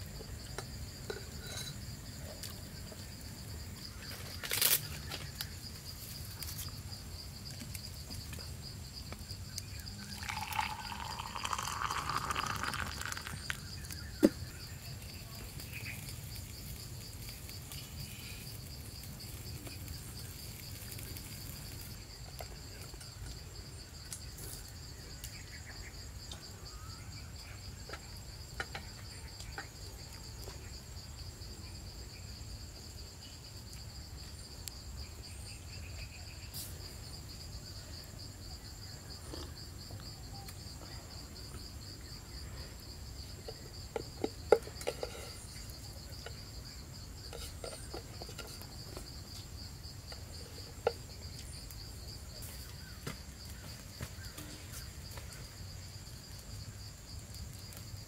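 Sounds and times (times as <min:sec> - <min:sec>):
insects trilling: 0:00.0 - 0:58.0
rustling scraping noise: 0:47.3 - 0:49.1.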